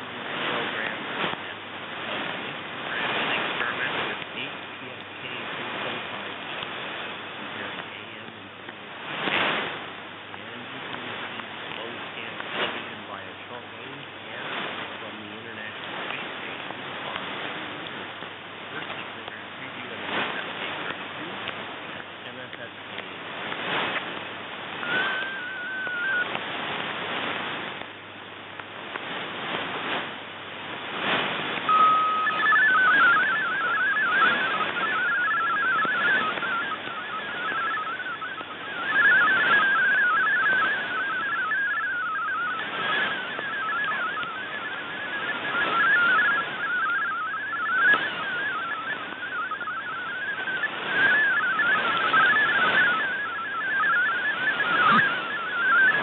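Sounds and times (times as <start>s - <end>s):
radio static hiss: 0.0s - 56.0s
steady radio tone: 0.0s - 56.0s
warbling digital radio tones: 0.0s - 56.0s
short burst of tones: 24.8s - 26.5s, 31.6s - 56.0s.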